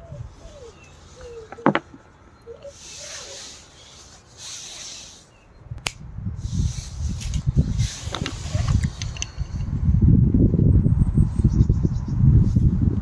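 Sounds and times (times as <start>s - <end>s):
bird calling: 0.0s - 5.7s
soft breathy hissing: 2.6s - 5.5s, 6.4s - 9.5s.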